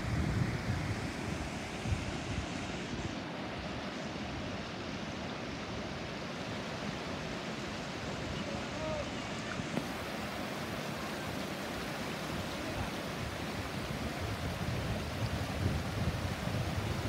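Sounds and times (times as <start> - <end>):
wind rumble on microphone: 0.0 - 4.6, 11.6 - 17.0
stream rushing over stones: 0.0 - 17.0.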